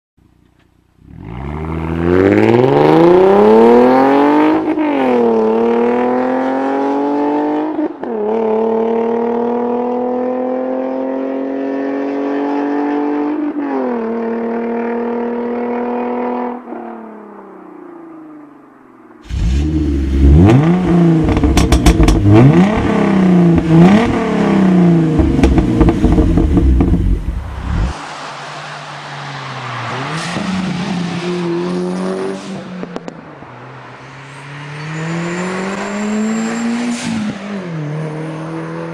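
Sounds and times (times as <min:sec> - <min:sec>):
turbocharged car engine revving: 0:01.2 - 0:07.6, 0:19.3 - 0:28.0
car accelerating through gears: 0:01.2 - 0:16.6, 0:19.3 - 0:28.0.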